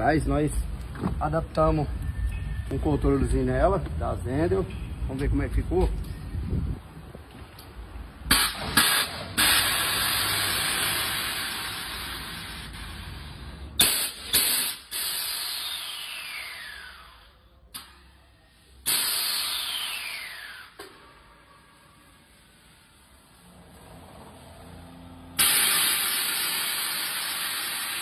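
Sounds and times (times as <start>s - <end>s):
sharp air blasts: 8.2s - 23.4s, 25.3s - 28.0s
air suspension hissing: 8.3s - 17.1s, 18.8s - 21.0s, 25.4s - 28.0s
short air puffs: 8.3s - 18.0s, 18.8s - 22.9s, 25.4s - 28.0s.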